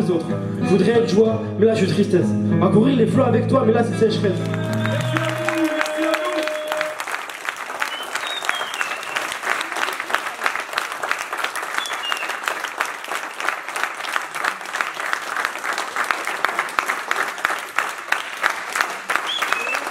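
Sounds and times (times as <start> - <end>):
people clapping: 4.3 - 19.9.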